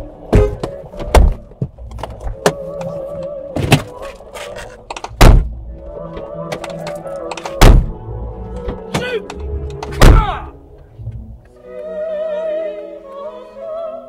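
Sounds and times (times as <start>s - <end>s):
heavy thumps: 4.9s - 5.6s, 7.5s - 8.0s, 9.8s - 10.5s.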